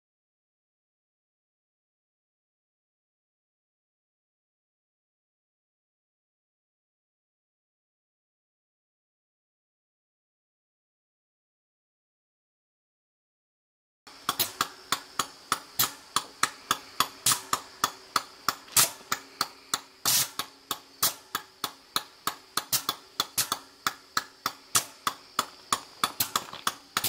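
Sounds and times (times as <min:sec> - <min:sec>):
faint high whine: 0:14.1 - 0:27.0
regular sharp clicking: 0:14.1 - 0:27.0.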